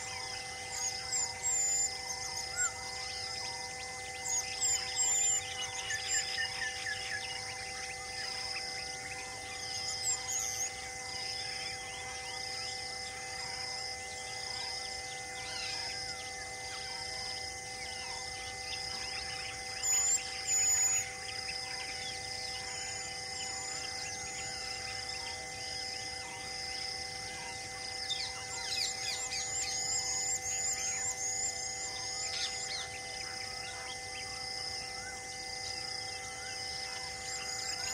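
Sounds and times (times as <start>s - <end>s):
birds chirping and calling: 0.0s - 8.5s, 17.8s - 25.4s, 27.3s - 34.4s.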